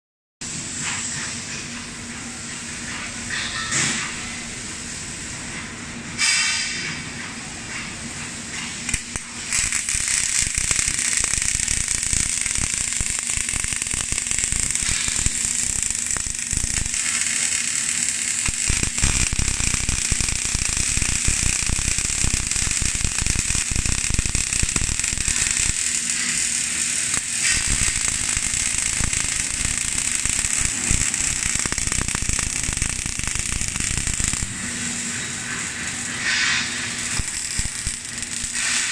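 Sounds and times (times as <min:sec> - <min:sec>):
steady hum: 0:07.4 - 0:38.9
welding arcs crackling: 0:08.0 - 0:38.9.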